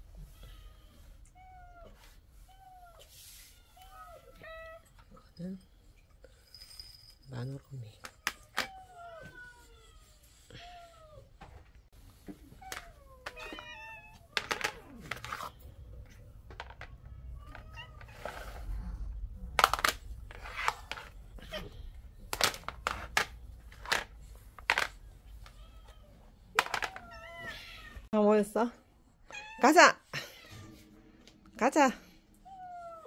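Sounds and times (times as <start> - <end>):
cats meowing: 8.0 - 11.4, 12.4 - 15.5, 16.6 - 19.3, 25.3 - 28.1
plastic trays clacking on tile floor: 14.3 - 15.5, 16.4 - 18.6, 19.5 - 21.2, 22.2 - 25.6, 26.5 - 27.2.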